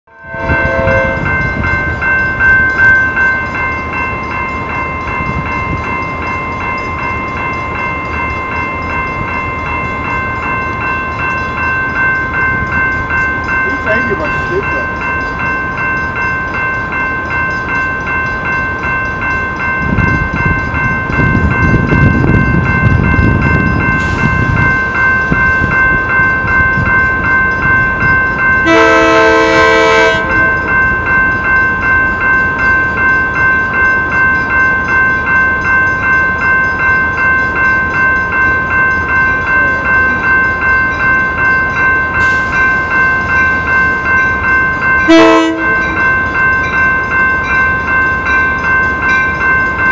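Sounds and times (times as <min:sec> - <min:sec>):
train horn blast: 0:00.1 - 0:01.4, 0:28.6 - 0:30.4, 0:45.1 - 0:45.8
low train rumble: 0:00.1 - 0:49.9
warning bell ringing: 0:00.1 - 0:49.9.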